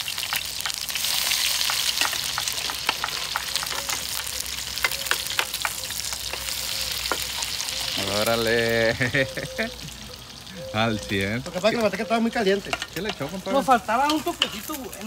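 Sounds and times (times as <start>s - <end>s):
eggs sizzling in hot oil: 0.0s - 15.0s.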